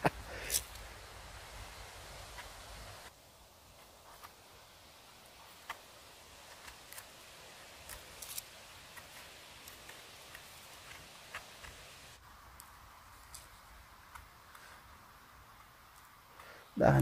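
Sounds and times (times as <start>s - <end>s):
quiet hiss: 0.0s - 17.0s
knife scraping mushroom stem: 6.4s - 11.8s.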